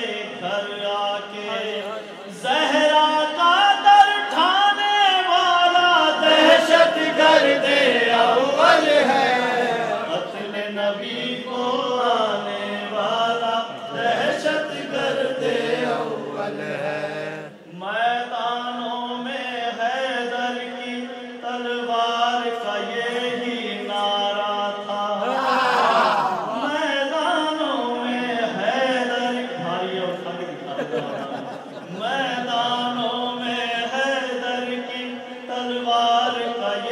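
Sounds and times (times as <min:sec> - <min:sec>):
man chanting unaccompanied: 0:31.9 - 0:36.9.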